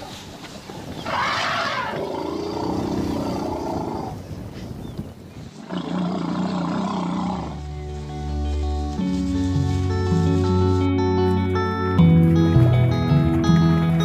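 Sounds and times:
elephant trumpeting and roaring: 0.9s - 4.3s, 5.6s - 7.6s.

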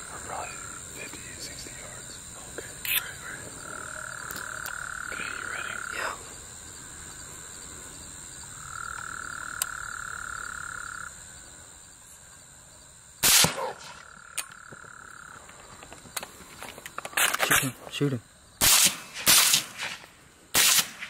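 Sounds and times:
frogs trilling: 0.0s - 11.9s, 13.5s - 17.0s
high insect buzz: 0.0s - 21.0s
rifle shot: 13.2s - 14.0s, 18.6s - 21.0s.

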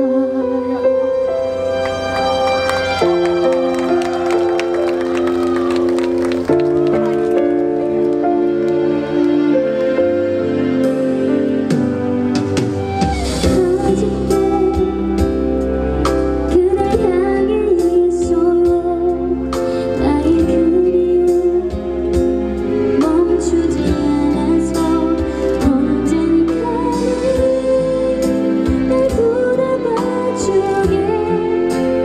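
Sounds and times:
woman singing into microphone: 0.0s - 1.2s, 13.4s - 15.6s, 16.4s - 22.2s, 23.0s - 32.0s
band accompaniment with steady beat: 10.8s - 32.0s.

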